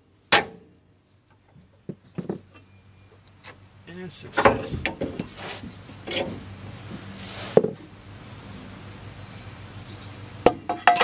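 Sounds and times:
steady low hum: 0:00.0 - 0:11.0
metal part scraping and rustling: 0:04.3 - 0:07.9.

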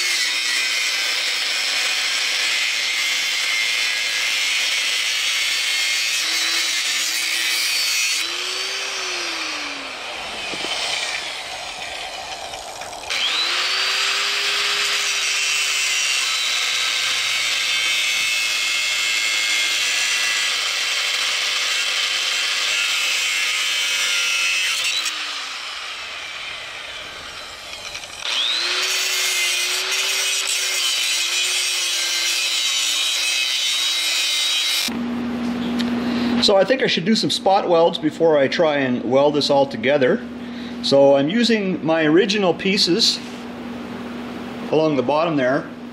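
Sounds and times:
angle grinder cutting steel: 0:00.0 - 0:35.0.

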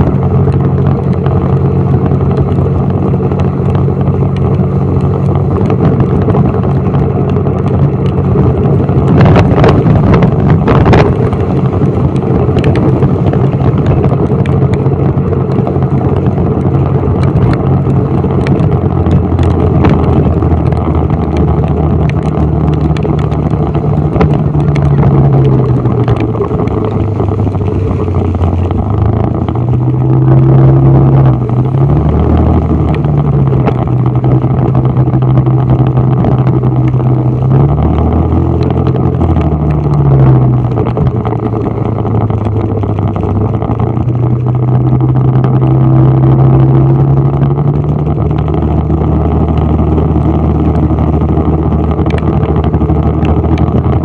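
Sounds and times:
vehicle engine running: 0:00.0 - 0:54.0.

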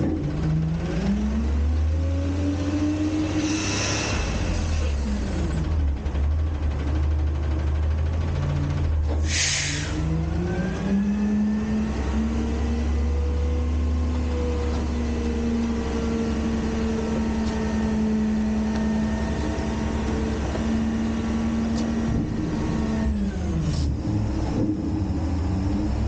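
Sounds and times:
diesel engine at raised revs: 0:00.0 - 0:26.0
hydraulic whine: 0:03.3 - 0:05.6.

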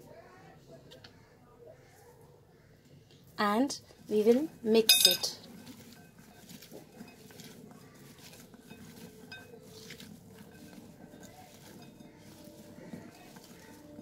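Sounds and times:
potato pieces rustling: 0:03.6 - 0:14.0
light clinks against glass: 0:04.9 - 0:05.4.

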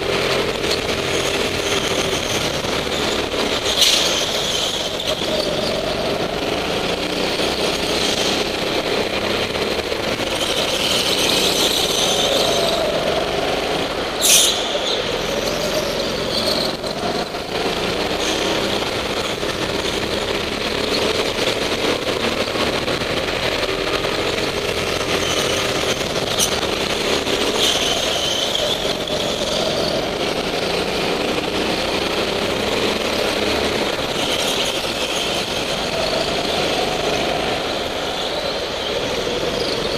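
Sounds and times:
go-kart engines running: 0:00.0 - 0:39.9
tyre squeal: 0:10.3 - 0:13.0, 0:14.2 - 0:17.3, 0:25.0 - 0:30.2.

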